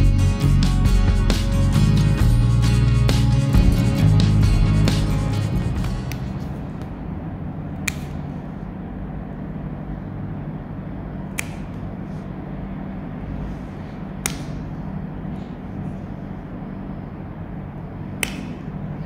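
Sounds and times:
steady low hum: 0.0s - 19.0s
nail clippers clicking: 7.8s - 8.2s, 11.3s - 11.8s.

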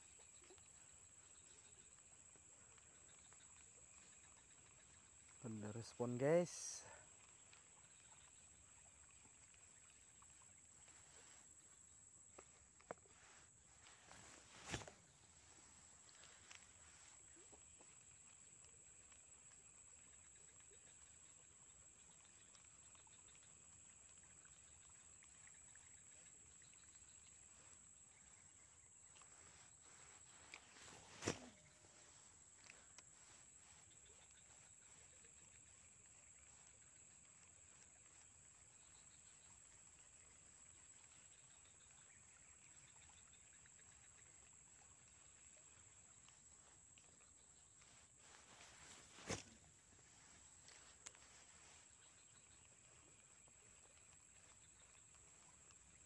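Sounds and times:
insects humming: 0.0s - 56.0s
tiny faint ticks: 50.6s - 51.2s.

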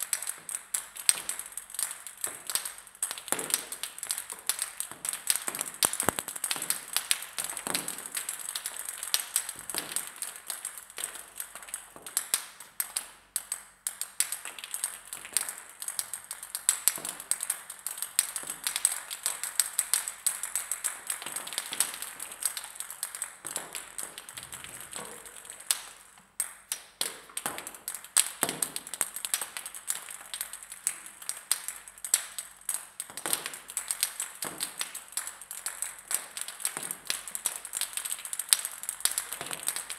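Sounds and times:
ping pong balls bouncing on floor: 2.2s - 8.3s, 22.6s - 29.5s.

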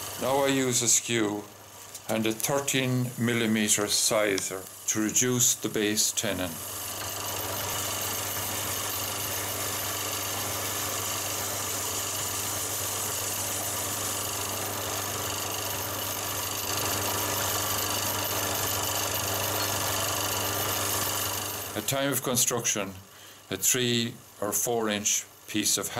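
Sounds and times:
chisel cutting spinning wood: 0.0s - 1.4s, 2.0s - 21.9s
wood lathe motor hum: 0.0s - 21.9s.

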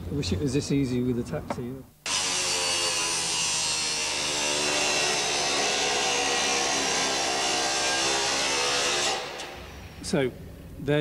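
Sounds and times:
angle grinder cutting metal: 2.1s - 10.1s.

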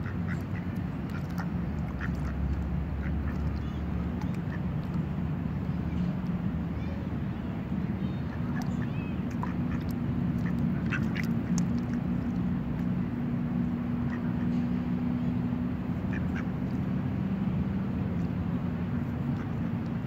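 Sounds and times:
steady low hum: 0.0s - 20.0s
duck quacking: 1.1s - 4.6s, 8.3s - 11.6s, 14.0s - 14.6s, 16.1s - 16.5s.

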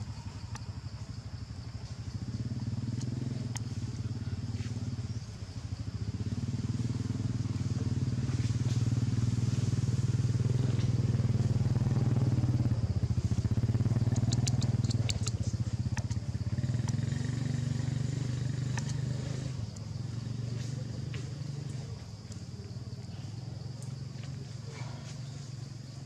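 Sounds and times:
small engine humming: 0.0s - 26.0s
sharp high clicks: 13.8s - 16.2s, 18.5s - 19.9s.

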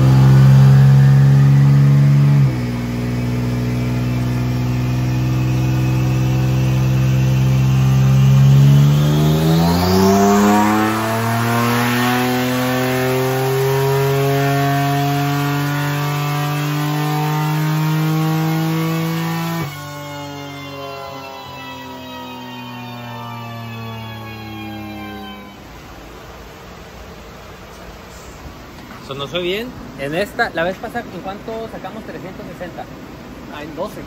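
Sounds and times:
engine revving under load: 0.0s - 25.8s
high turbo whine: 0.0s - 28.7s.

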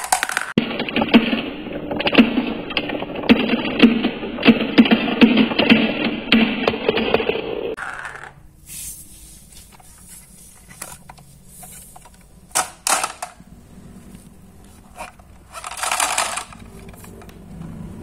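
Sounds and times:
marbles rattling: 0.0s - 0.6s, 7.7s - 8.4s, 15.4s - 17.2s
plastic toy clacking: 0.0s - 1.2s, 12.0s - 13.4s, 15.0s - 17.4s.

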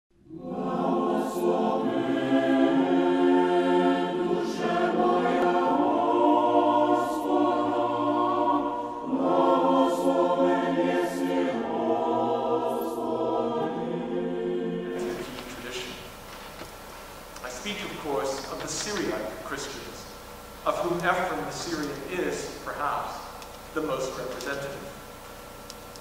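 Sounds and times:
choir singing long notes: 0.2s - 16.2s.

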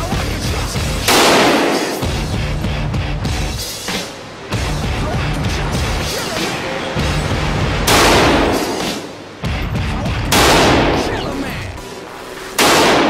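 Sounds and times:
rifle shots echoing indoors: 1.1s - 2.1s, 7.9s - 9.3s, 10.3s - 11.1s, 12.6s - 13.0s.

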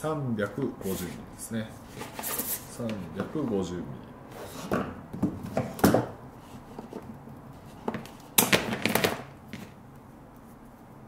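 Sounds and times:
cable handling knocks and rustle: 1.9s - 3.7s, 4.6s - 9.8s.

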